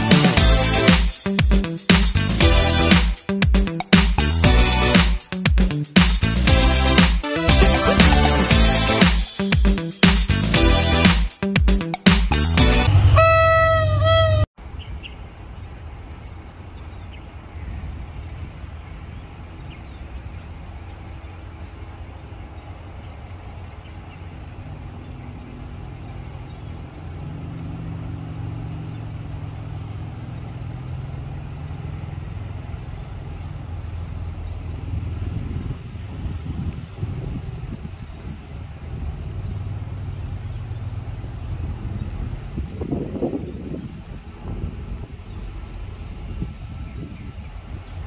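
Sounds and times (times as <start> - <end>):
music intro: 0.0 - 14.5
diesel locomotive engine rumble: 0.0 - 48.0.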